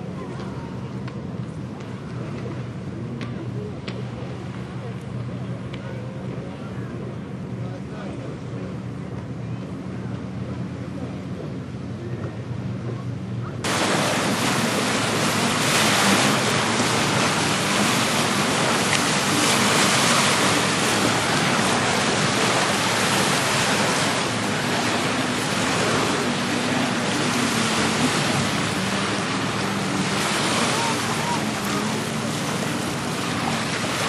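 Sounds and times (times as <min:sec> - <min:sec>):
wind and water rushing: 0:13.6 - 0:34.0.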